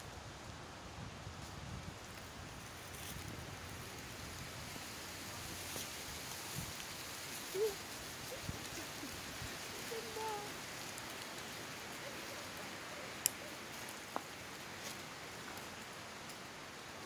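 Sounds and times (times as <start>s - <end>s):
forest ambience hiss: 0.0s - 17.0s
faint sharp clicks: 12.0s - 16.4s.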